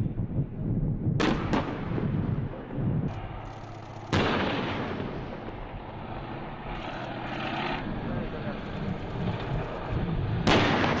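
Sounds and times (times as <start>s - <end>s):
rolling echo: 1.2s - 6.5s, 10.2s - 11.0s
tank engines rumbling: 1.6s - 11.0s
tank guns firing: 3.2s - 5.5s, 10.4s - 11.0s.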